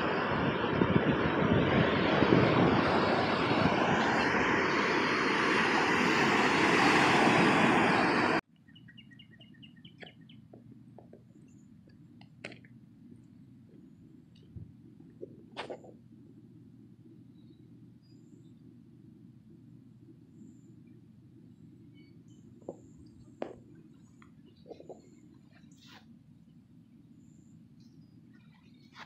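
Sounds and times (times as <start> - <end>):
wind buffeting microphone: 0.0 - 11.3, 22.4 - 25.3
beach surf: 1.6 - 8.4
small bird chirping: 8.6 - 11.9, 20.2 - 29.0.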